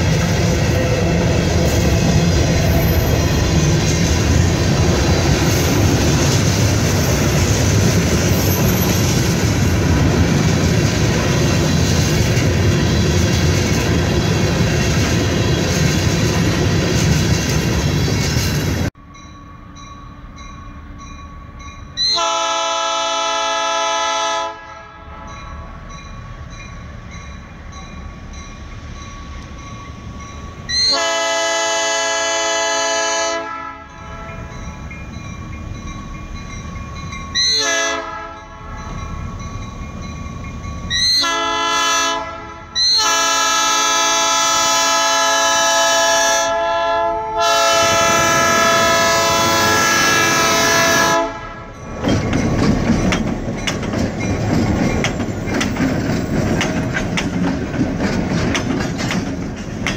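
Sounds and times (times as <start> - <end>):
locomotive air horn blasts: 22.0 - 25.3, 30.7 - 34.4, 37.4 - 38.8, 40.9 - 51.7
train wheels clattering over rail joints: 51.8 - 59.9.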